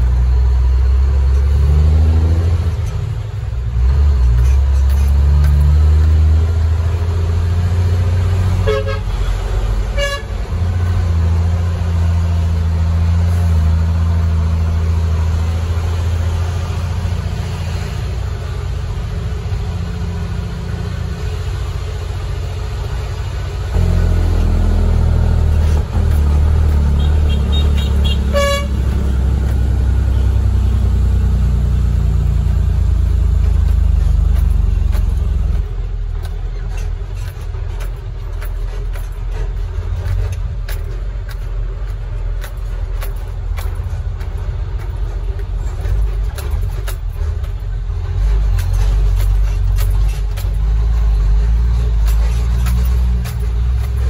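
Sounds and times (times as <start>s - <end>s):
diesel truck engine droning: 0.0s - 54.0s
short horn toot: 8.6s - 9.3s, 9.9s - 10.3s, 26.9s - 28.9s.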